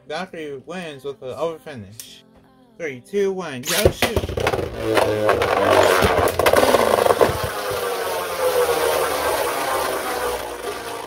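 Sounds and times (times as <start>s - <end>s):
spinning tops whirring and clashing: 3.7s - 11.0s.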